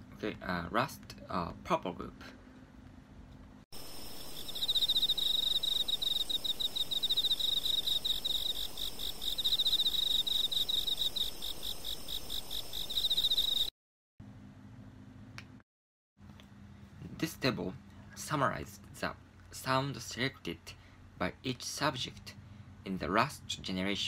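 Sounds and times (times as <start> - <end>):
cricket-like chirping: 3.8 - 13.7.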